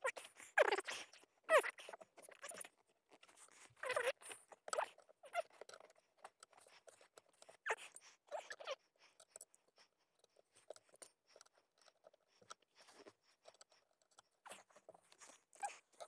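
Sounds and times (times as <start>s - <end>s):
squeaky chirps: 0.6s - 2.7s, 3.6s - 5.6s, 7.4s - 8.8s, 14.4s - 16.0s.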